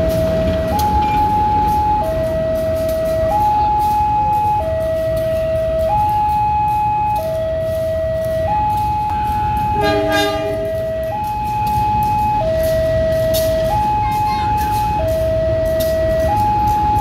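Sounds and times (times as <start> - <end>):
locomotive rumble: 0.0 - 17.0
two-tone warning alarm: 0.0 - 17.0
short buzzy horn blast: 9.8 - 10.7.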